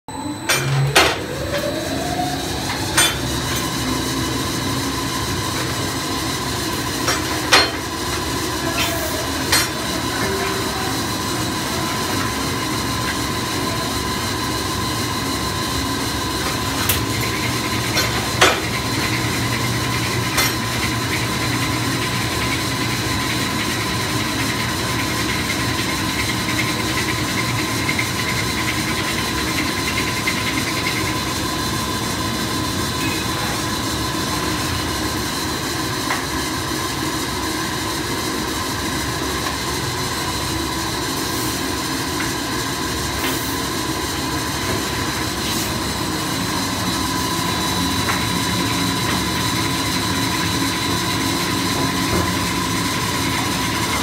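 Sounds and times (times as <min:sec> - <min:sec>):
short rising whine: 0:00.1 - 0:07.0
machining line humming: 0:00.1 - 0:25.1
constant machine whine: 0:00.1 - 0:54.0.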